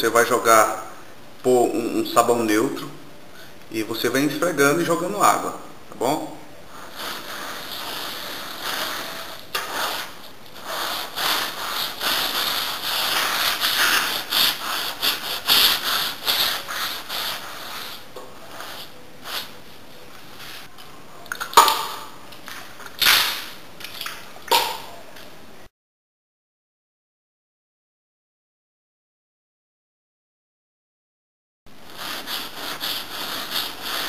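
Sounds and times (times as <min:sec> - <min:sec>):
sponge scrubbing rough wall: 0:06.8 - 0:19.0, 0:31.9 - 0:34.0.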